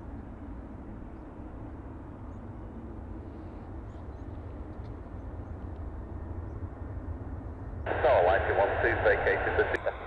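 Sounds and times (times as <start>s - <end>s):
jet engines rumbling: 4.6s - 10.0s.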